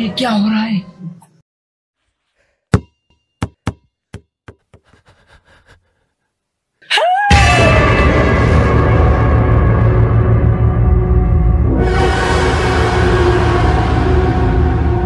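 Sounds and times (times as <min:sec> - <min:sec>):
sharp knocks: 0:02.7 - 0:04.8
horror music sting: 0:07.6 - 0:15.0.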